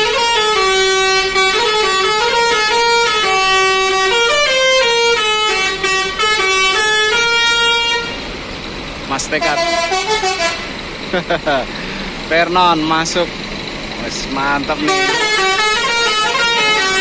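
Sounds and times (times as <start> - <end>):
bus horn playing a tune: 0.0 - 8.4, 9.3 - 10.8, 14.8 - 17.0.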